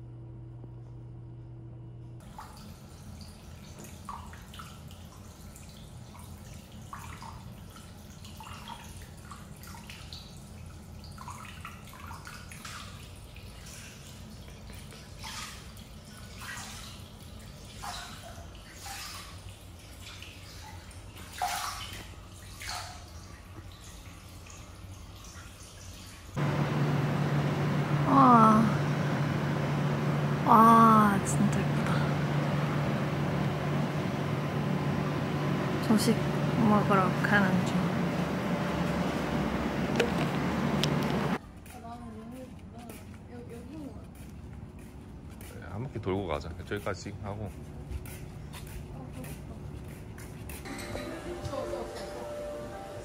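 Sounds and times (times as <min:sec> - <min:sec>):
water drips and small splashes: 0:02.2 - 0:26.4
steady low hum: 0:26.4 - 0:53.0.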